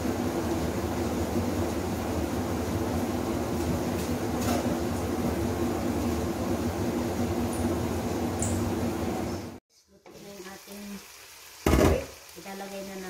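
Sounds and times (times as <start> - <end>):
steady machine hum: 0.0 - 9.6.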